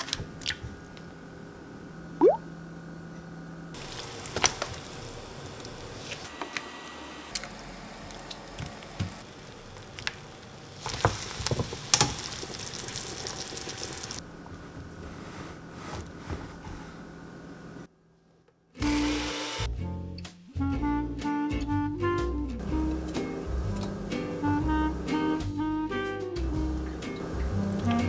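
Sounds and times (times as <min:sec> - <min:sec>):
water boiling and bubbling: 0:02.2 - 0:02.4, 0:03.8 - 0:14.2
knocks and splashes in pot: 0:10.9 - 0:14.0.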